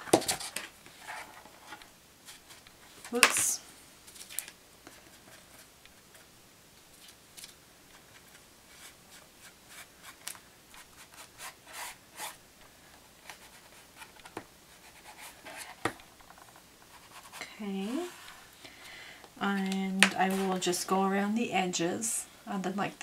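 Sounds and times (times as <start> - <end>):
foam brush scratchy strokes: 8.6 - 12.4, 13.2 - 15.8, 16.8 - 18.5.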